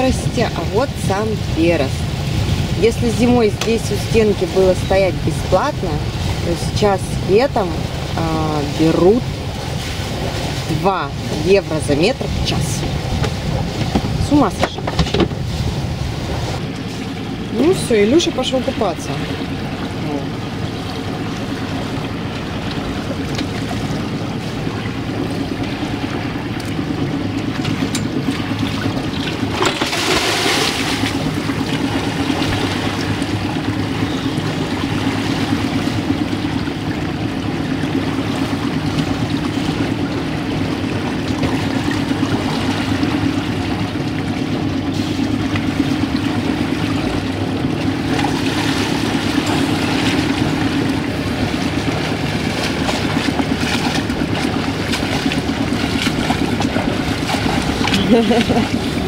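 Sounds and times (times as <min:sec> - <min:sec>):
boat engine running: 0:00.0 - 0:59.0
loud splashing: 0:00.0 - 0:59.0
water rushing along hull: 0:00.0 - 0:59.0.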